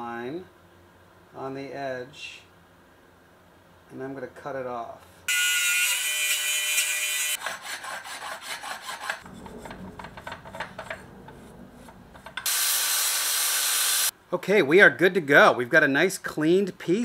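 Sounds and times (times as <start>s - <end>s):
angle grinder cutting metal: 5.3s - 10.8s, 12.3s - 14.1s
file rasping on metal: 5.7s - 11.5s.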